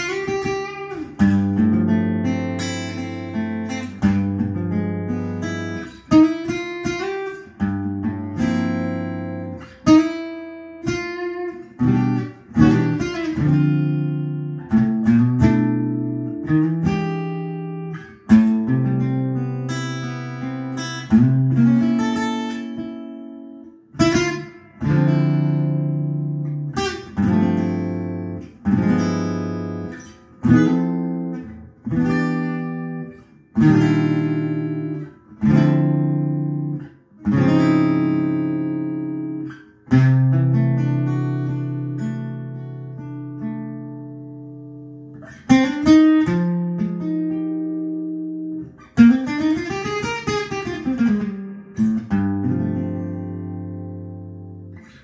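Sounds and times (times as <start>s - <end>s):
acoustic guitar strummed chords: 0.0s - 55.0s.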